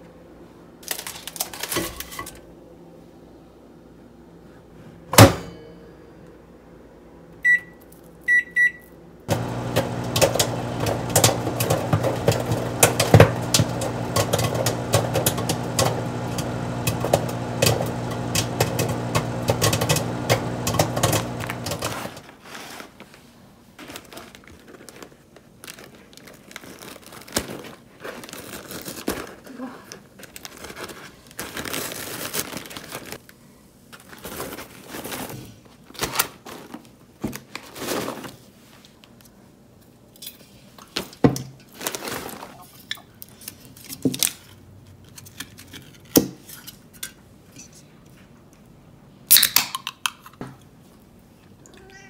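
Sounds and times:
keypad beeps: 0:07.4 - 0:08.8
microwave oven humming: 0:09.3 - 0:22.2
popcorn popping: 0:09.3 - 0:22.3.

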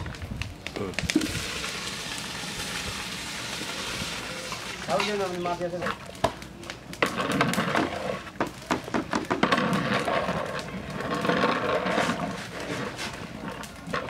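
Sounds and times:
thick rice and broth bubbling: 0:00.0 - 0:14.0
metal paddle scraping pot: 0:07.0 - 0:14.0.

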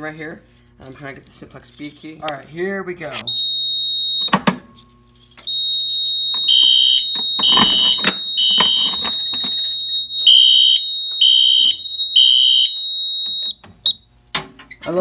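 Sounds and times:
steady high alarm tone: 0:03.2 - 0:14.0
fire alarm horn blasts: 0:03.3 - 0:04.4, 0:05.4 - 0:14.1.

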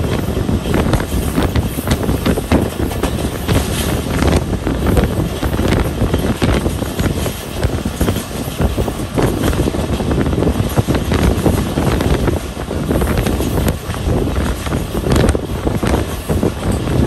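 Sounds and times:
train rumble: 0:00.0 - 0:17.0
train wheels clattering: 0:00.0 - 0:17.0
wind on microphone: 0:00.0 - 0:17.0.

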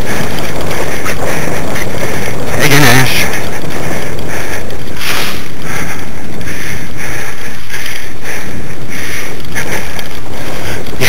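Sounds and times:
rig rattling over grass: 0:00.0 - 0:05.6
wind buffeting microphone: 0:00.0 - 0:11.0.

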